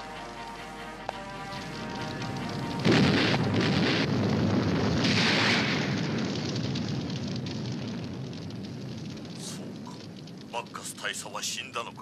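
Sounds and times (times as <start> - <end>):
cartoon explosion rumbling: 2.8 - 11.1.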